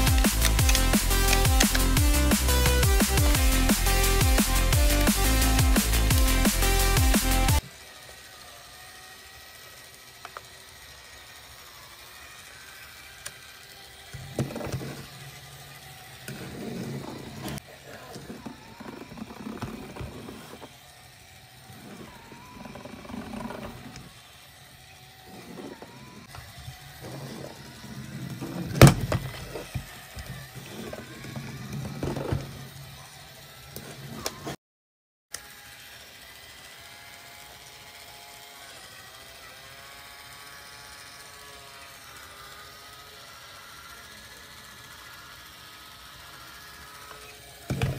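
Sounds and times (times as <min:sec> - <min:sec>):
toy electronic sound effects: 0:00.0 - 0:34.5.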